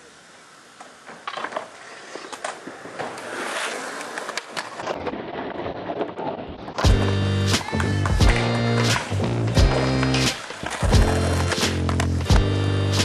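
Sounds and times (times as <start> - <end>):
skateboard wheels rolling on concrete: 0.0 - 13.0
skateboard clacking: 0.8 - 5.0, 6.8 - 13.0
loud music: 6.9 - 13.0.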